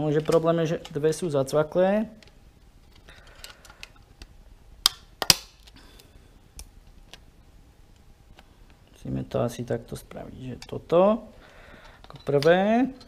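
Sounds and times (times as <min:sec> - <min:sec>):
sharp plastic snaps: 0:03.4 - 0:05.8.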